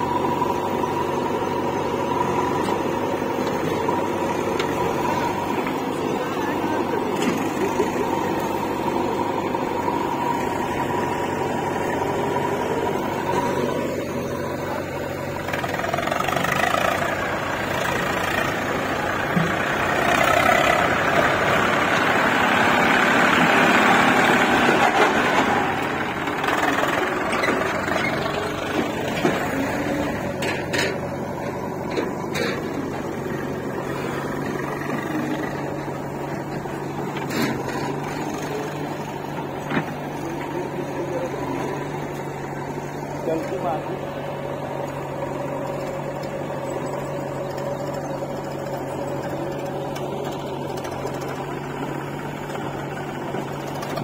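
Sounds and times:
diesel engines running: 0.0 - 54.0.

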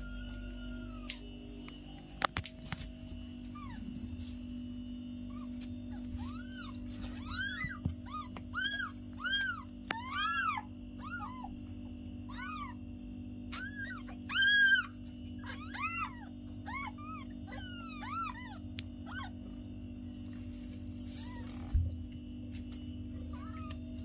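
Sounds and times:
steady low hum: 0.0 - 24.0
kittens mewing: 5.3 - 12.8, 13.5 - 19.5, 23.2 - 24.0.

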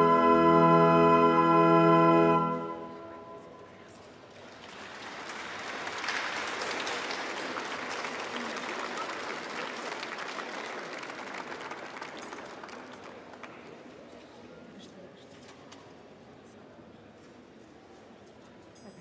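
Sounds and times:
audience applauding: 4.2 - 13.8.

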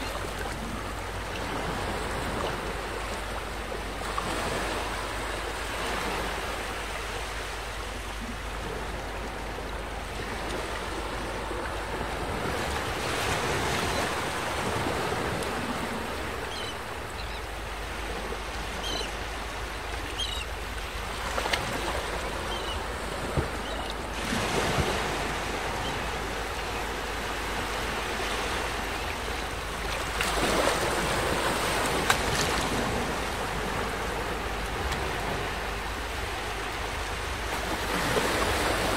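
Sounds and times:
small waves breaking on beach: 0.0 - 38.9.

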